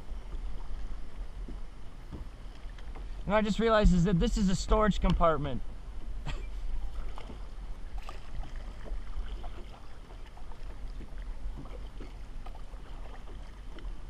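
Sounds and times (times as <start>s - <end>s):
water lapping against hull: 0.0s - 4.2s, 5.9s - 14.0s
kayak paddle splashing: 6.5s - 14.0s.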